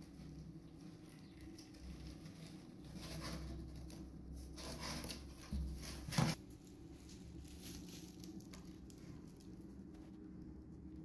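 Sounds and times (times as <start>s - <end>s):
kitten rustling on blanket: 4.4s - 9.4s.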